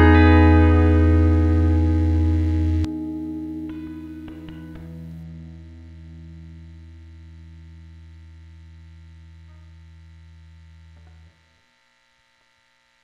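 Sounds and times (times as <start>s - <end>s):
sustained music note: 0.0s - 6.6s
faint steady hum: 0.0s - 13.0s.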